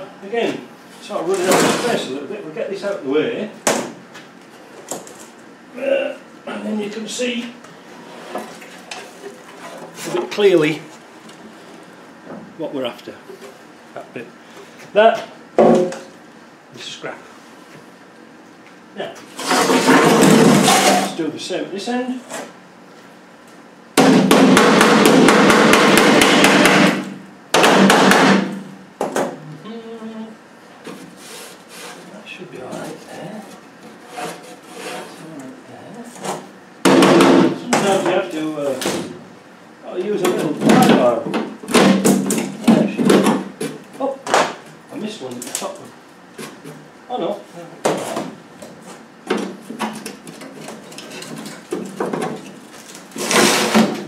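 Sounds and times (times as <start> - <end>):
metal panel scraping: 19.3 - 21.1
hammer striking metal panel: 24.0 - 27.0, 27.6 - 28.5, 36.9 - 37.6.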